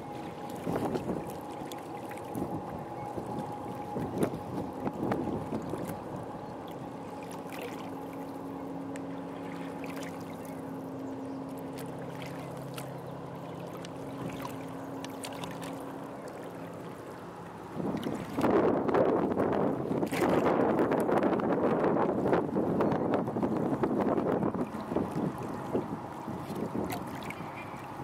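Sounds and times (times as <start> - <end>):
faint low engine hum: 0.0 - 28.0
light wind: 0.0 - 28.0
small waves lapping at rocks: 6.7 - 17.1, 24.6 - 28.0.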